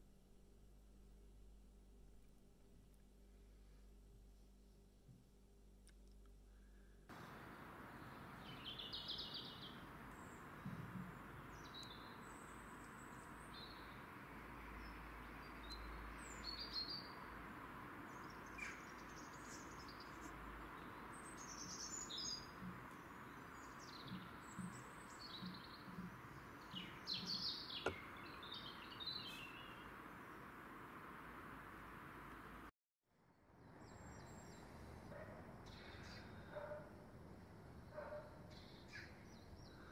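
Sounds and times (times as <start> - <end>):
steady background hiss: 7.1 - 14.8
small birds chirping: 7.1 - 32.7, 33.7 - 39.9.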